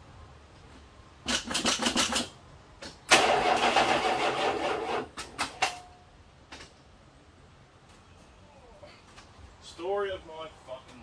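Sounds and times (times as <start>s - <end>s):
car starter cranking: 3.1s - 5.6s.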